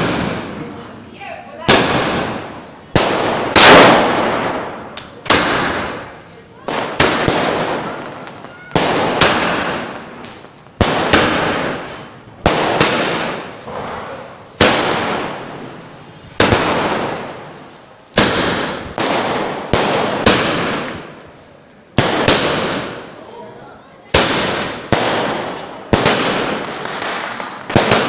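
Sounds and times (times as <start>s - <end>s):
crackle of sparks: 0.0s - 21.0s
fireworks bursting: 0.0s - 23.4s, 24.0s - 28.0s.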